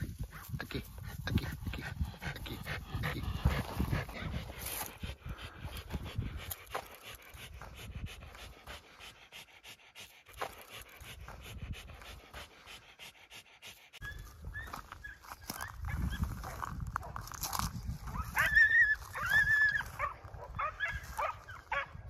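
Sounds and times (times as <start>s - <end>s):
dog panting rapidly: 0.0s - 16.6s.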